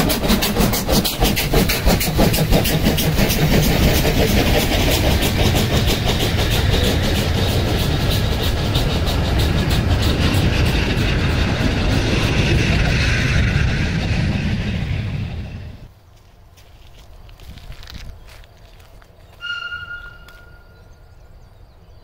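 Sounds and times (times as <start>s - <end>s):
steam locomotive exhaust chuffs: 0.0s - 15.9s.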